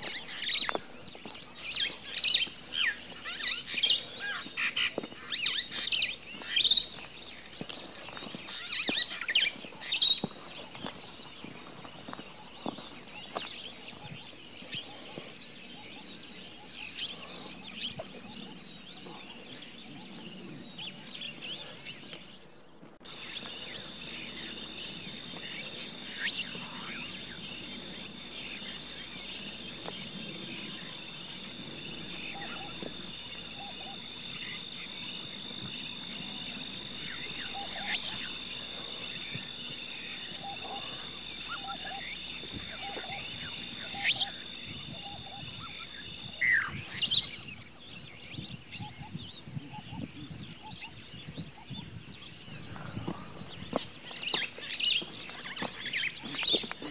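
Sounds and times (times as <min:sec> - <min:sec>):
high animal chorus: 0:00.0 - 0:47.7, 0:52.4 - 0:56.9
birds chirping: 0:00.0 - 0:56.9
pulsing animal chorus: 0:23.0 - 0:46.4.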